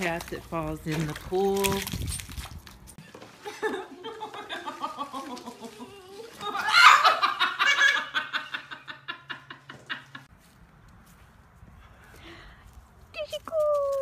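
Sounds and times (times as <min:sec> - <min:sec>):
person laughing hard: 0:03.4 - 0:10.2.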